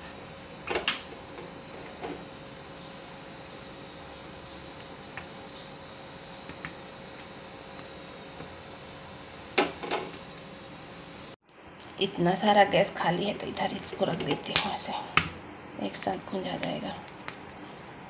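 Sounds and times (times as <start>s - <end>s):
gas burner hissing: 0.0s - 11.8s.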